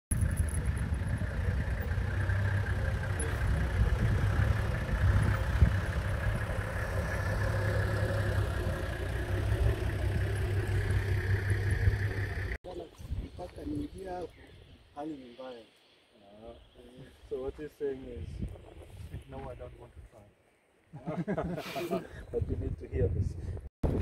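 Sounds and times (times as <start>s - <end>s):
vehicle engine humming at low speed: 0.1s - 12.6s.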